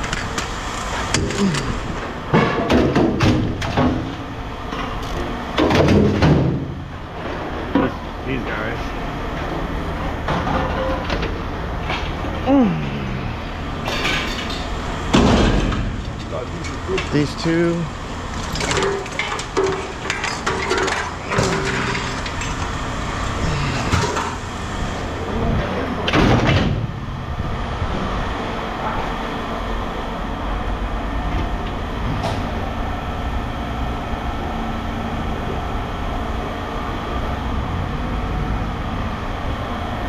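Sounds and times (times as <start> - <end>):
engine running: 0.0 - 40.0.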